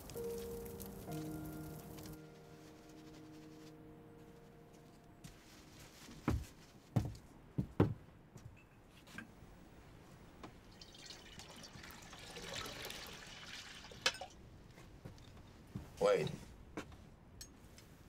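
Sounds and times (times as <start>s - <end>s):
water poured from a jug: 10.7s - 14.3s.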